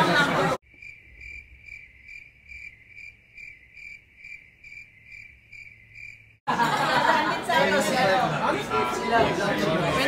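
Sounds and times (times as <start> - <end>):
cricket chirping: 0.6 - 6.4.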